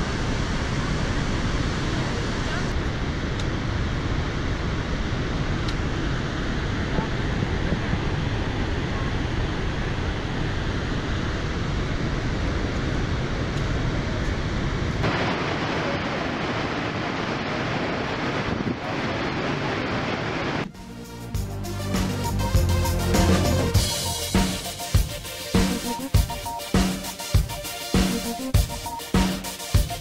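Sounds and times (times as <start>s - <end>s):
waterfall rushing: 15.0s - 20.7s.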